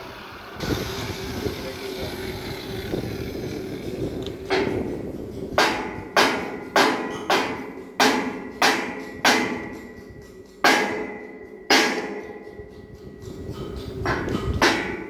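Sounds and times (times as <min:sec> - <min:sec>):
hammer striking metal: 0:04.3 - 0:15.0.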